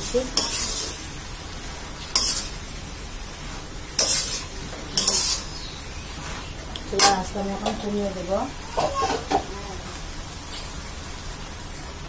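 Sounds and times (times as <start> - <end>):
low steady hiss: 0.0 - 12.0
spatula scraping metal wok: 0.1 - 1.1, 2.0 - 2.7, 3.9 - 8.0.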